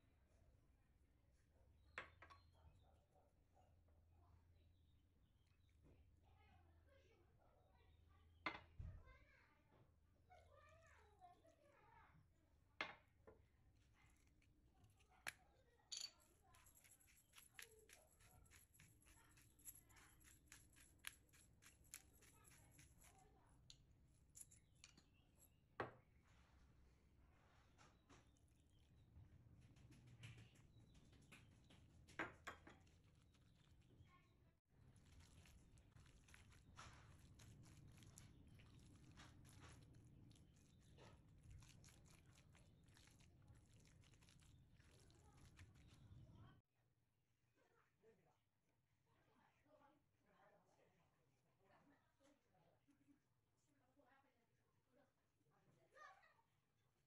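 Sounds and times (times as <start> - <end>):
spatula stirring wet minced meat: 31.5 - 34.0, 34.8 - 46.3.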